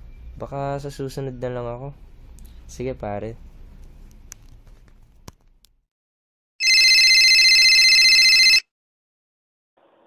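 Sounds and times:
telephone ringing: 6.6 - 8.7.

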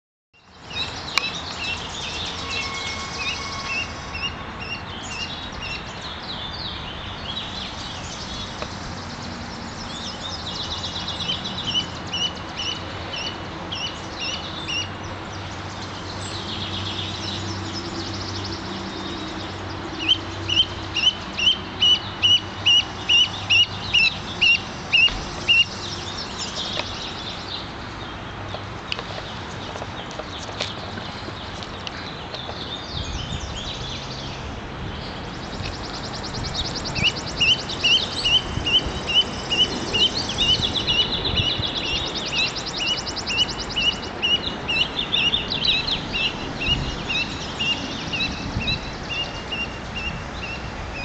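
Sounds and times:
gosling peeping: 36.9 - 51.0.

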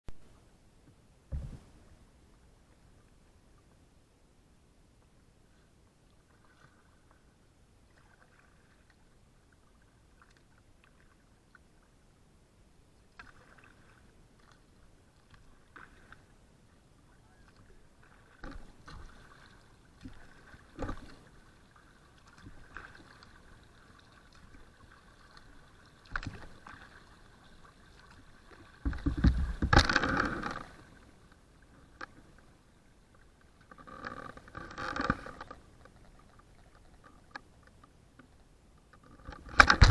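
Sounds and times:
kayak paddle splashing water: 6.2 - 11.8, 13.0 - 16.3, 17.3 - 37.0.

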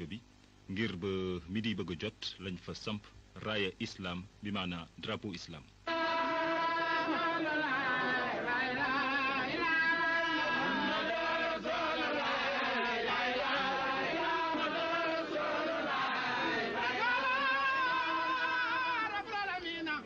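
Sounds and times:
men singing a devotional chant: 5.9 - 19.6.

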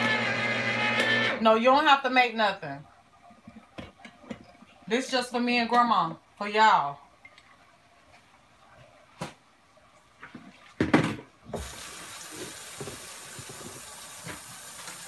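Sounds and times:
kitchen faucet water running: 11.5 - 15.0.

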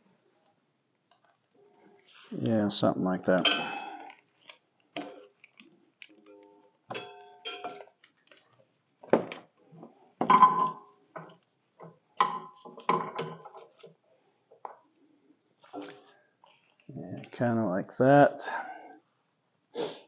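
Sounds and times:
metal couplers clinking against metal: 3.4 - 4.2, 6.9 - 7.8.

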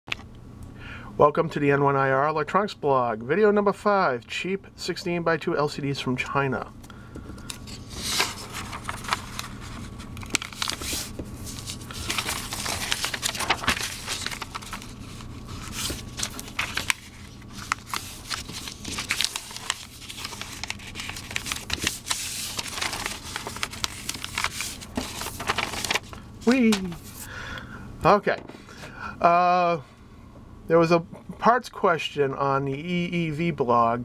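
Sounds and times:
paper rustling and crinkling: 7.3 - 27.3.

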